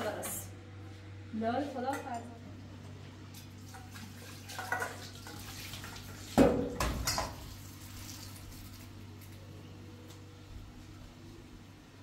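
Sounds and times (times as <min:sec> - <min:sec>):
low steady hum: 0:00.0 - 0:12.0
pots clattering: 0:03.7 - 0:07.5
dishes clinking: 0:04.5 - 0:05.4.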